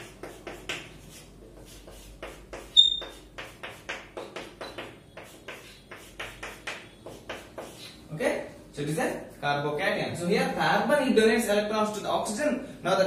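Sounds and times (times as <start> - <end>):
chalk squeak: 0.0 - 8.0
chalk writing on blackboard: 0.0 - 8.1.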